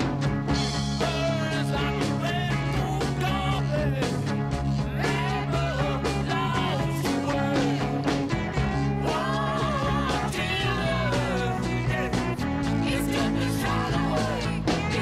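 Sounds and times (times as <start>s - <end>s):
steady drum beat: 0.0s - 15.0s
sustained bass notes: 0.0s - 15.0s
person singing: 0.9s - 4.2s, 4.8s - 15.0s.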